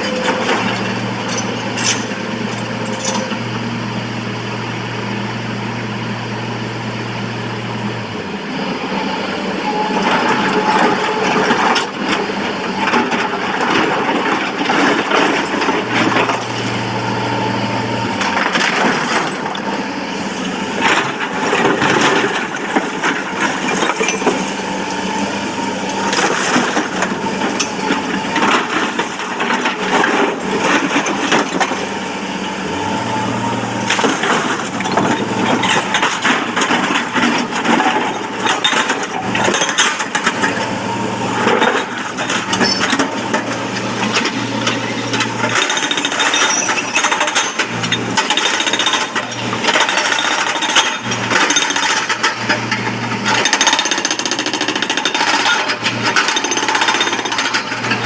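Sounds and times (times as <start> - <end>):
diesel engines humming: 0.0 - 58.0
hydraulic breaker hammering stone: 41.3 - 58.0.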